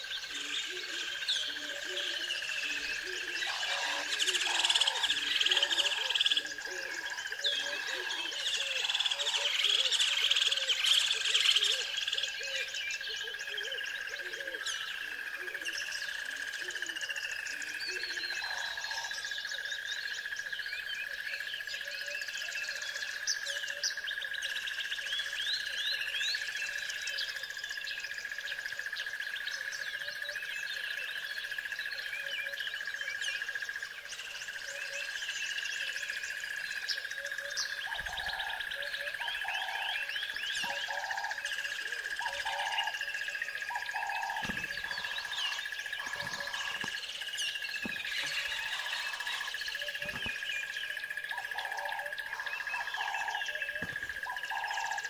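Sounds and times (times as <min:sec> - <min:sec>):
birds chirping and singing: 0:00.0 - 0:55.0
lower bird call: 0:36.9 - 0:55.0.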